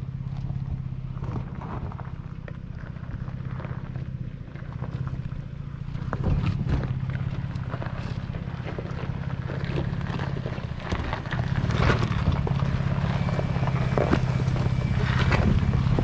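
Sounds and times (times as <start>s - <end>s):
truck engine hum: 0.0s - 16.0s
tyres crunching on gravel: 0.0s - 16.0s.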